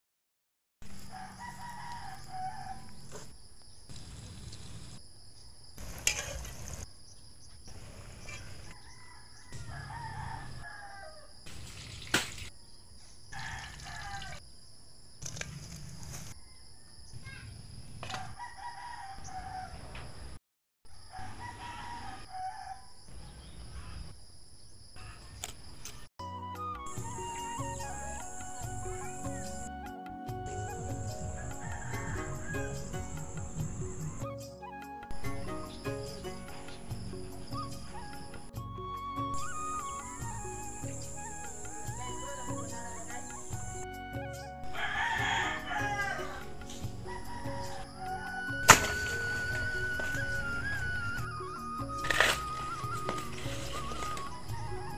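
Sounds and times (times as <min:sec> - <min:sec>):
roosters crowing: 0:00.9 - 0:03.1, 0:08.5 - 0:11.4, 0:13.3 - 0:14.4, 0:18.2 - 0:20.1, 0:21.0 - 0:22.9, 0:30.5 - 0:34.3, 0:39.6 - 0:51.2.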